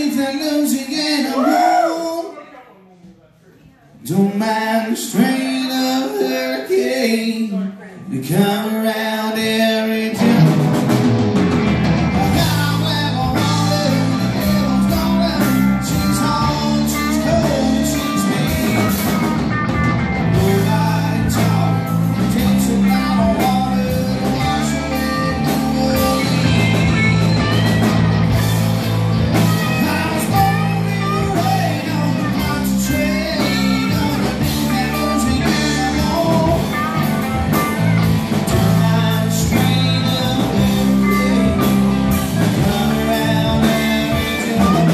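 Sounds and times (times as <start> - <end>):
bass guitar: 4.1 - 44.9
electric guitars: 8.3 - 44.9
drum kit: 9.5 - 44.9.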